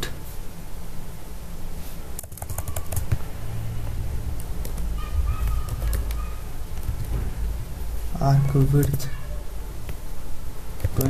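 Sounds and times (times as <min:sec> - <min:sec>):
steady low hum: 0:00.0 - 0:11.0
computer keyboard typing: 0:02.2 - 0:03.3, 0:04.4 - 0:07.1, 0:10.8 - 0:11.0.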